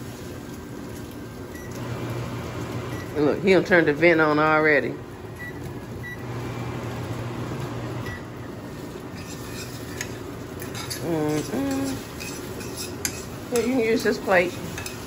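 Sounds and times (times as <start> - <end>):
range hood fan running: 0.0 - 15.0
utensils clinking: 9.1 - 15.0.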